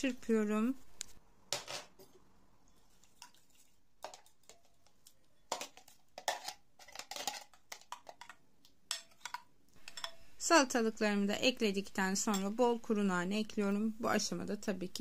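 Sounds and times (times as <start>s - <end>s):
metal spoon clinking against glass bowl: 8.9s - 10.2s.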